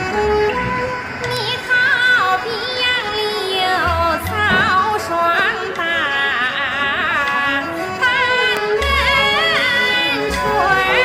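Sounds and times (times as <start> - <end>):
ornamented melody with vibrato: 0.0 - 11.0.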